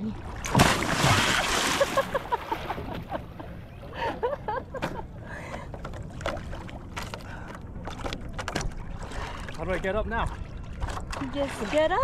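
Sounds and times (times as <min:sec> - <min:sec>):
water sloshing against boat: 0:00.0 - 0:12.0.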